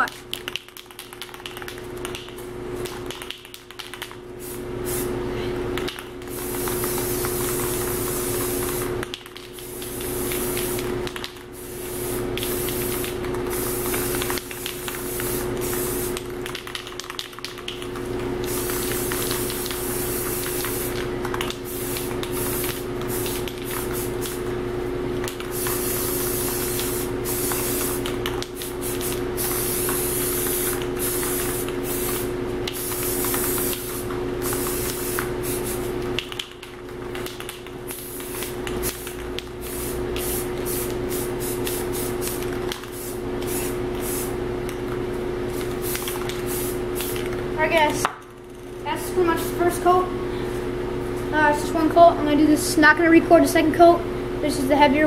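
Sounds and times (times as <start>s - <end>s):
steady low hum: 0.0s - 55.0s
spray paint can hissing: 4.4s - 5.1s, 6.2s - 24.5s, 25.3s - 36.6s, 37.2s - 44.4s, 45.5s - 47.3s.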